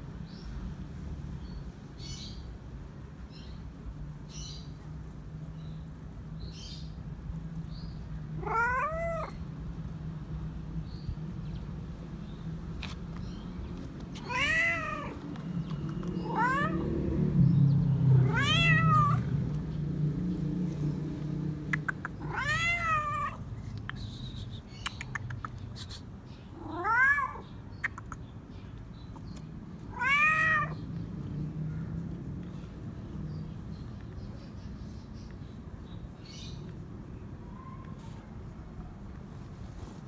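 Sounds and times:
cat meowing: 8.4 - 9.4, 14.2 - 15.2, 16.2 - 17.0, 18.2 - 19.3, 22.2 - 23.4, 26.6 - 27.4, 29.9 - 30.8.

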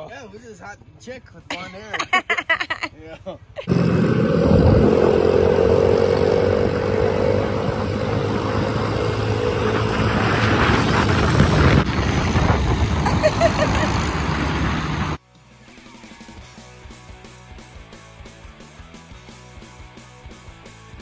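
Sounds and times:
motorbike engines droning: 3.6 - 15.2
dense rushing noise: 3.7 - 15.2.

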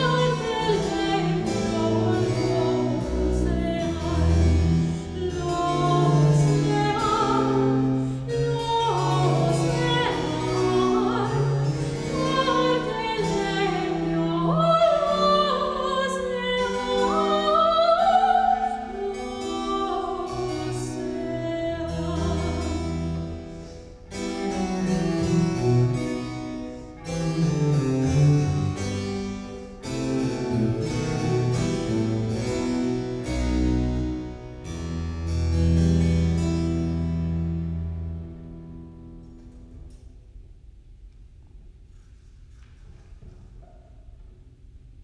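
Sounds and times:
soprano singing with vibrato: 0.0 - 23.3
cello: 0.0 - 40.0.

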